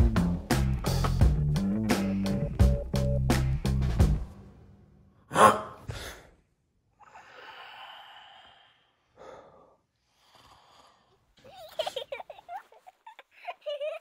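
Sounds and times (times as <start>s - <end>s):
person breathing heavily in sleep: 7.0s - 11.3s.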